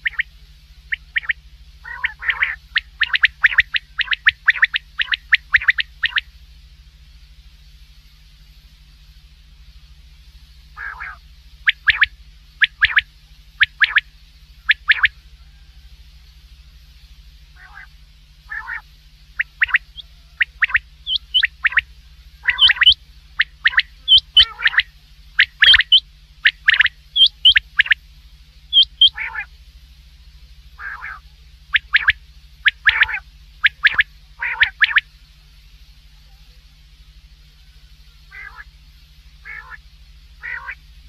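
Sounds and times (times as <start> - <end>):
quail calling: 0.0 - 0.3, 0.9 - 6.3, 10.8 - 15.7, 17.6 - 28.0, 28.7 - 29.5, 30.8 - 35.1, 37.6 - 38.7, 39.4 - 39.8, 40.4 - 40.8
steady low hum: 0.0 - 41.0.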